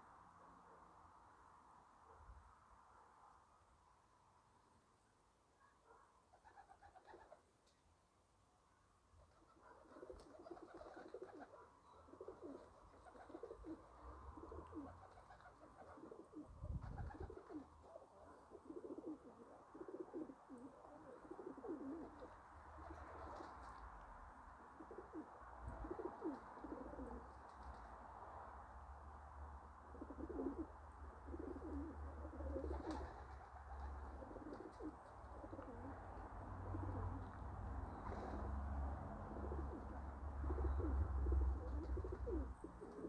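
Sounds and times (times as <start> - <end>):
pigeons cooing: 6.4 - 7.4, 9.3 - 23.7, 24.7 - 27.4, 29.9 - 38.6, 39.2 - 43.0.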